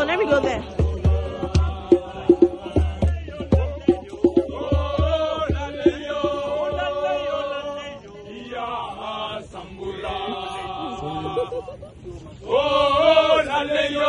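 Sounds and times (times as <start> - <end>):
group of voices chanting: 12.4 - 14.0.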